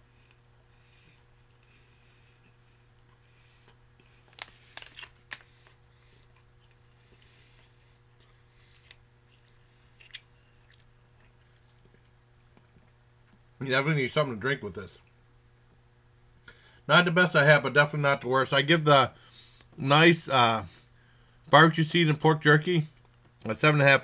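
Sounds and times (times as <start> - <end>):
low electrical hum: 0.0 - 24.0
man chewing: 0.1 - 13.5
plastic bag rustling: 4.2 - 5.6.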